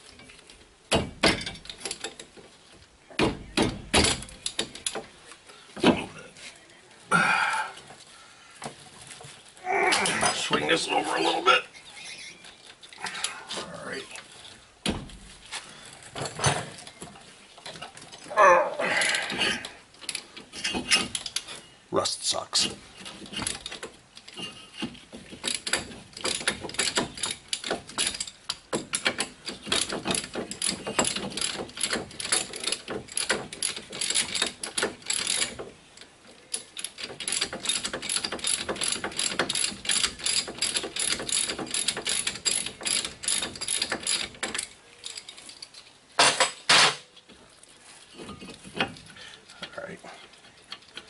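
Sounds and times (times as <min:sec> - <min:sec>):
hand ratchet clicking: 0:23.0 - 0:45.7.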